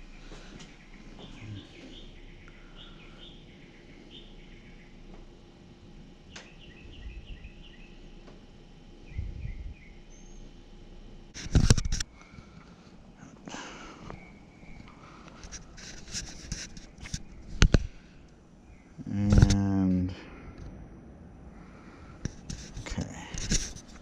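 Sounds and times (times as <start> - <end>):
clicks and rustling: 11.4 - 12.7.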